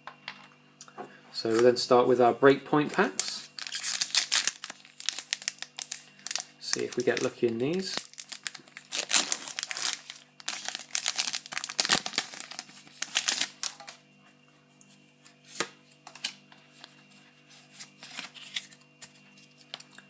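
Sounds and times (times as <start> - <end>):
foil wrapper crinkling and tearing: 3.0 - 14.0, 17.8 - 20.0.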